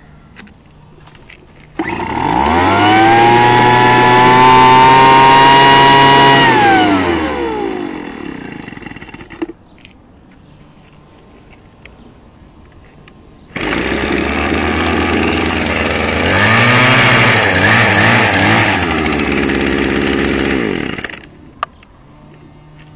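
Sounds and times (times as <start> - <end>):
string trimmer engine revving: 1.8 - 9.5, 13.5 - 21.3.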